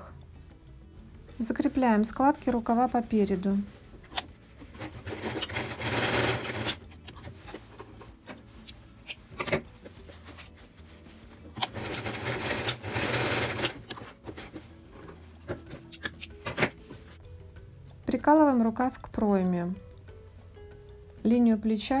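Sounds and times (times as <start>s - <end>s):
fabric rustling: 1.4s - 17.2s
sewing machine stitching: 4.7s - 7.7s, 11.6s - 14.6s.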